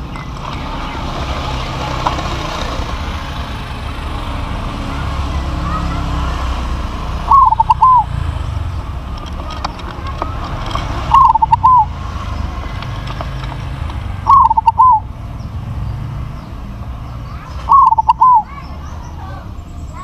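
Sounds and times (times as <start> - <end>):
dove cooing: 7.1 - 8.2, 9.4 - 12.8, 14.2 - 15.1, 17.2 - 19.5.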